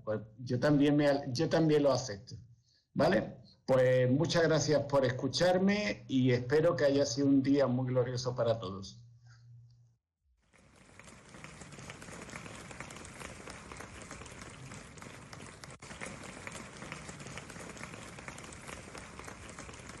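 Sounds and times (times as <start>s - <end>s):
audience applause: 10.5s - 20.0s.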